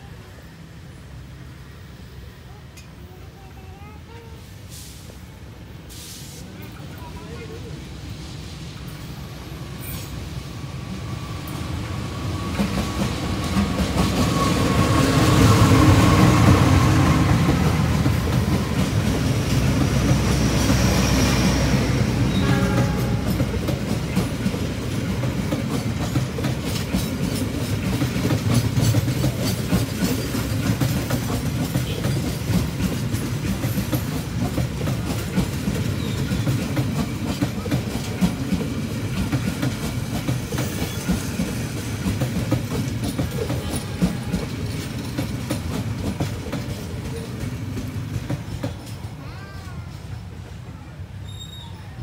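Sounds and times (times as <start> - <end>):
train wheels clattering over rail joints: 22.3 - 49.2.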